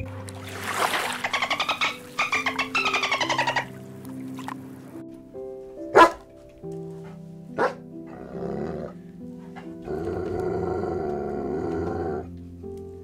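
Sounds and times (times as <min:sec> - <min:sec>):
background music: 0:00.0 - 0:13.0
dog barking: 0:05.9 - 0:06.2, 0:07.6 - 0:07.8
dog growling: 0:07.6 - 0:12.3.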